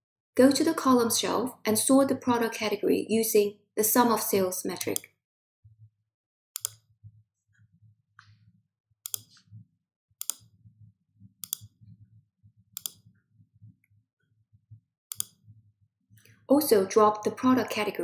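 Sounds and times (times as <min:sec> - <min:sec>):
computer mouse clicks: 0:04.7 - 0:05.1, 0:06.6 - 0:06.9, 0:09.0 - 0:09.5, 0:10.2 - 0:10.6, 0:11.4 - 0:11.8, 0:12.8 - 0:13.1, 0:15.1 - 0:15.4.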